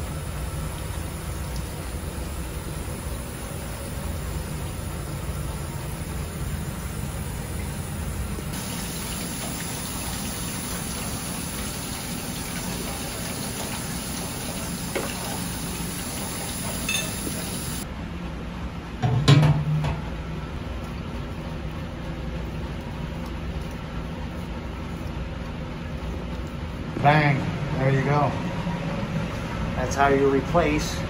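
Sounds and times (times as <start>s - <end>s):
water rushing: 8.6s - 17.8s.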